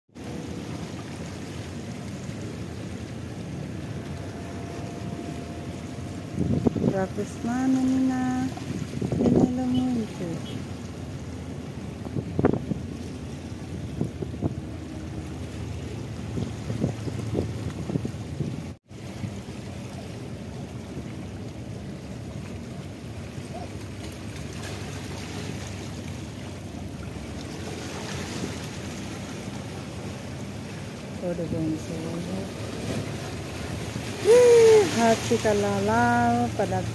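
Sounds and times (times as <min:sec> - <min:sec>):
low rumble of ship engines: 0:00.1 - 0:36.9
wind on microphone: 0:05.9 - 0:10.4, 0:11.8 - 0:14.8, 0:16.2 - 0:19.4.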